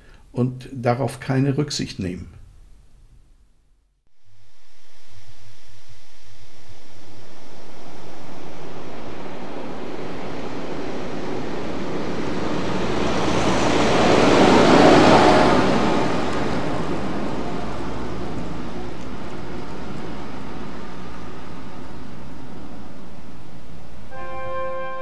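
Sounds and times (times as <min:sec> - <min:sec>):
steady outdoor rumble: 0:04.1 - 0:24.2
tractor driving past: 0:06.4 - 0:24.2.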